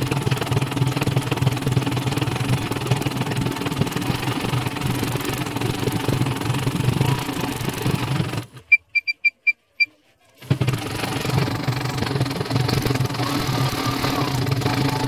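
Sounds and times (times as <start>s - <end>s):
embroidery machine stitching: 0.0s - 8.6s, 10.4s - 15.0s
short high electronic beeps: 8.7s - 9.9s.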